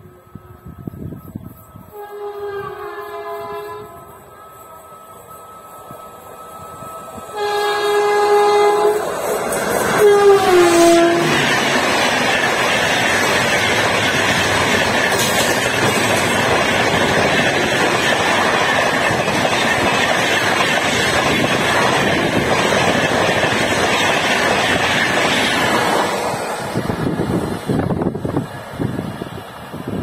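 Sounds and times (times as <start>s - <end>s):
train horn: 0.0s - 9.3s, 9.9s - 11.6s
passenger train rushing past: 0.0s - 30.0s.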